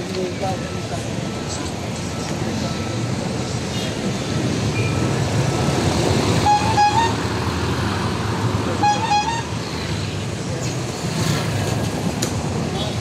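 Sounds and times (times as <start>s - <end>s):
street traffic engines: 0.0s - 13.0s
vehicle horn beeps: 6.4s - 7.2s, 8.8s - 9.5s.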